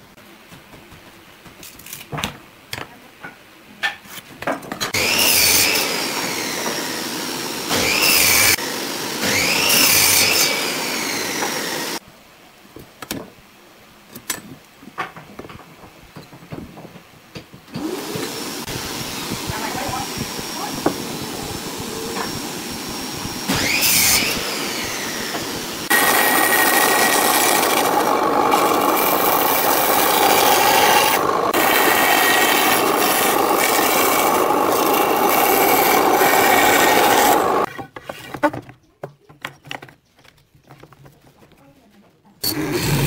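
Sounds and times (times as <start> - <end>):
band saw cutting wood: 4.9 - 12.0, 17.7 - 37.7, 42.4 - 43.0
knocks of wood being handled: 14.2 - 17.7.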